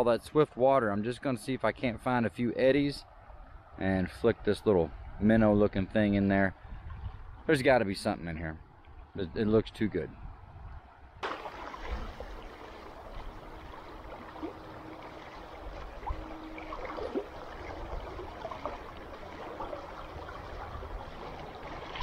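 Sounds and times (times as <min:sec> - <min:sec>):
river rushing and gurgling: 0:11.2 - 0:22.0.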